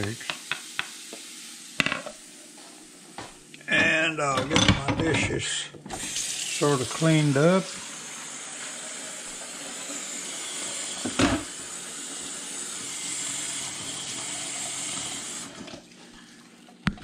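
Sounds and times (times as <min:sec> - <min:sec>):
tap water splashing into bowl: 0:16.8 - 0:17.0.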